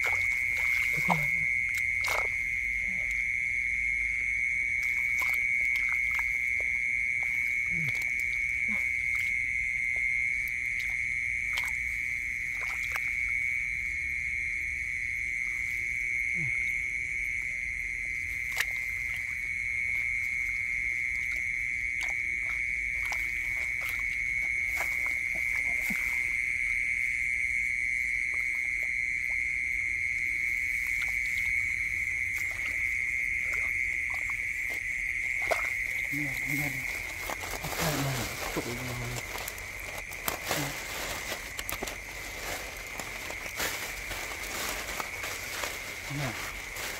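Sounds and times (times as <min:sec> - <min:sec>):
hands squelching in wet mud: 0:00.0 - 0:03.2, 0:04.7 - 0:13.3, 0:21.2 - 0:26.5, 0:30.6 - 0:46.9
night chorus of calling creatures: 0:00.0 - 0:03.4, 0:35.5 - 0:46.9.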